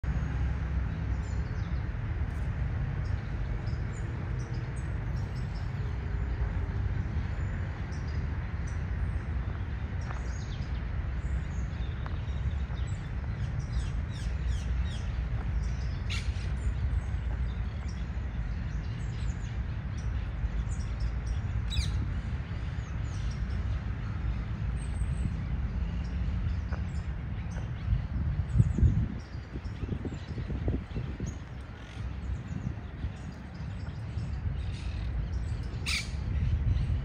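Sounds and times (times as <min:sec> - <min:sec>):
steady low rumble: 0:00.0 - 0:37.0
parakeets chirping and calling: 0:33.3 - 0:37.0.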